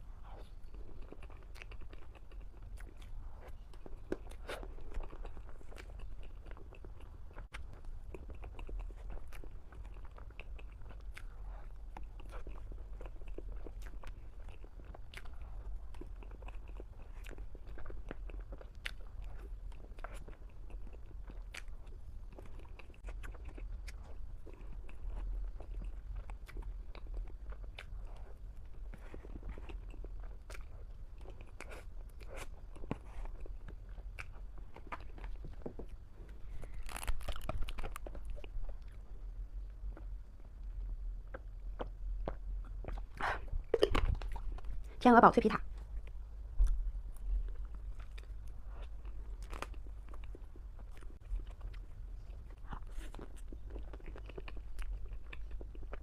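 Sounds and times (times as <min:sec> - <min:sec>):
chewing and wet mouth sounds: 0:00.0 - 0:56.0
steady low hum: 0:00.0 - 0:56.0.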